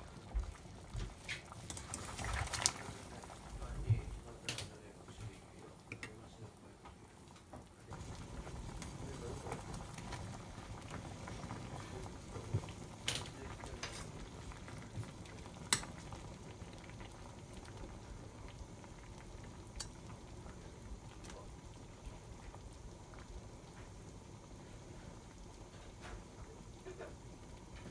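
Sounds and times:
broth bubbling in a pot: 0.0s - 27.9s.

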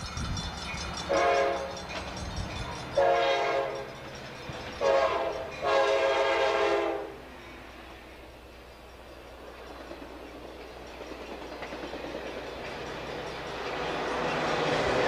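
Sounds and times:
low rumble of train: 0.0s - 15.0s
train air horn blasts: 1.1s - 1.8s, 3.0s - 3.9s, 4.8s - 7.2s.

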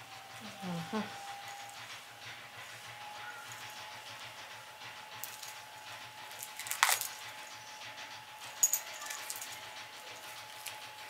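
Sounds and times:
metal watch bracelet clinking: 8.6s - 9.6s.

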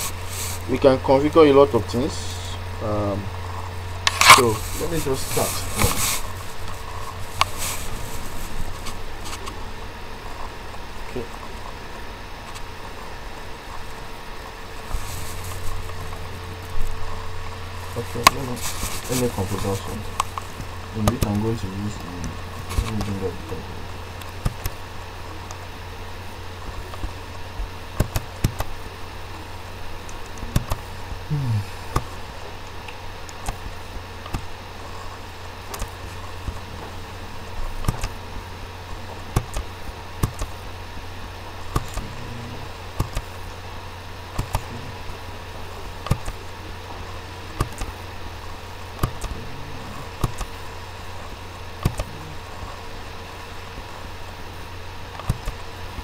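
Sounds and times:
low electrical hum: 0.0s - 56.0s
computer mouse clicks: 28.0s - 28.7s, 30.2s - 30.8s, 33.3s - 34.5s, 37.8s - 38.2s, 39.4s - 40.5s, 43.0s - 43.3s, 44.4s - 44.7s, 46.0s - 46.4s, 47.6s - 47.9s, 49.0s - 49.4s, 50.2s - 50.5s, 51.8s - 52.2s, 55.2s - 55.6s.

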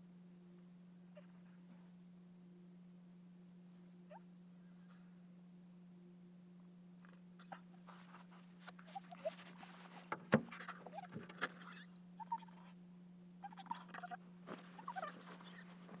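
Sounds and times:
steady low hum: 0.0s - 16.0s
faint rustling: 4.6s - 11.7s, 13.8s - 16.0s.

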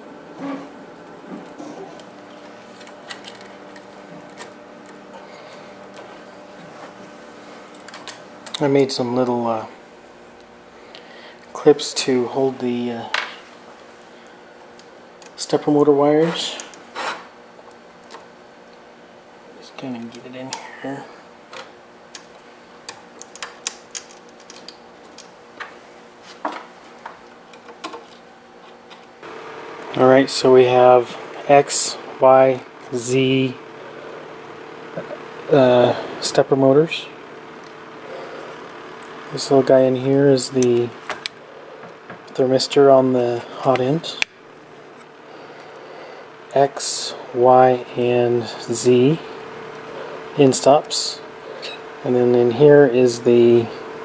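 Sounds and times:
faint steady hum: 0.0s - 54.0s
wires rustling: 0.3s - 9.4s.

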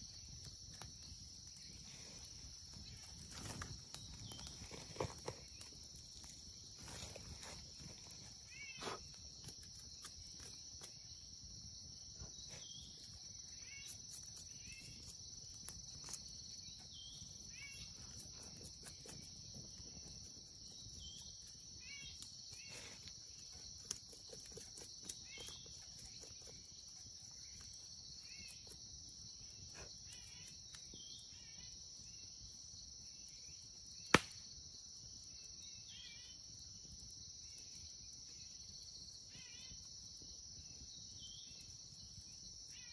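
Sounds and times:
insect chirps: 0.0s - 42.9s
small snaps: 34.0s - 34.4s.

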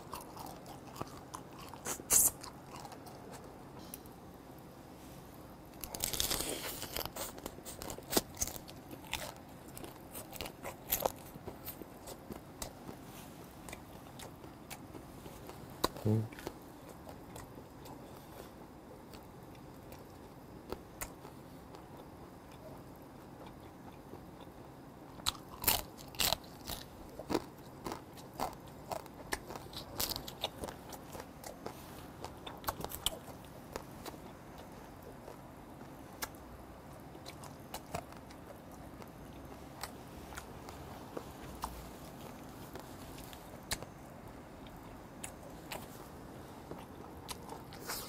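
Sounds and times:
person chewing and sucking: 0.0s - 4.1s, 5.7s - 13.0s, 25.2s - 35.5s, 37.0s - 44.0s, 44.6s - 48.0s.

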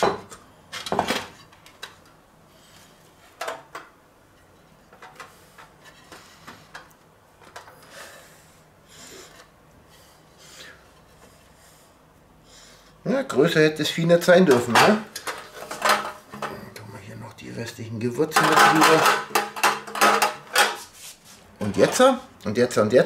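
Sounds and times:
hand rubbing and shuffling: 20.2s - 22.1s.

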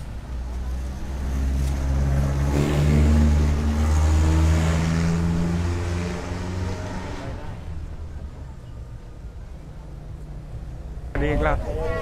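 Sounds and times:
vehicle passing by: 0.0s - 8.3s.

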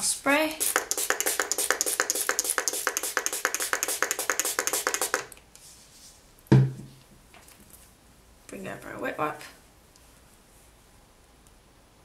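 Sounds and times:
spray bottle hissing: 0.6s - 5.3s.

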